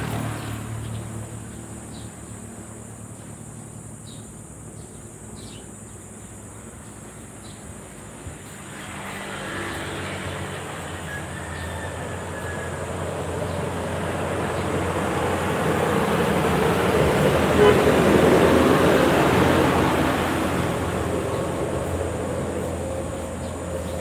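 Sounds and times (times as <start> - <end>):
truck driving past: 0.0 - 4.0, 5.9 - 24.0.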